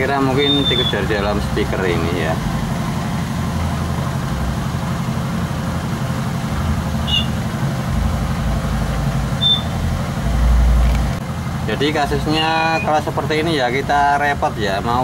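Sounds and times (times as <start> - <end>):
motor droning with throb: 0.0 - 15.0
short high chirps: 0.4 - 1.0, 7.0 - 7.4, 9.4 - 9.8.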